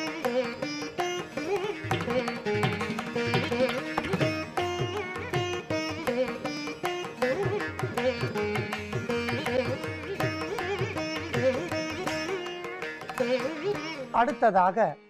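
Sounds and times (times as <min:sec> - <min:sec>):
plucked string melody: 0:00.0 - 0:14.5
hand drum rhythm: 0:01.8 - 0:13.5.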